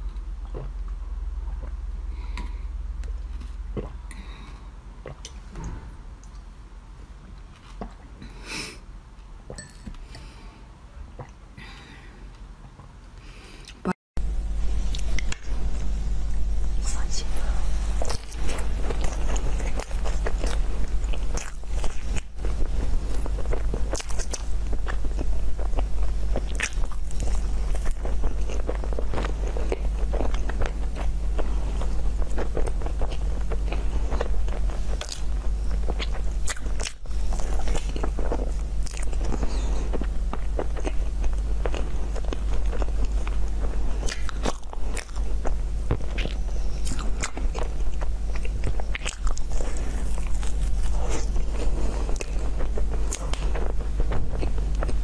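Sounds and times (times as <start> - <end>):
low hum: 0.0 - 55.0
biting and chewing crunchy food: 17.9 - 55.0.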